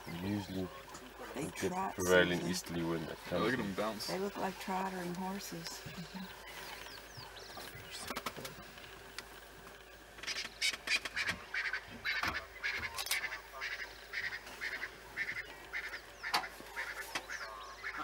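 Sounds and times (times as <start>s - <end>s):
wild dogs twittering calls: 10.2s - 18.0s.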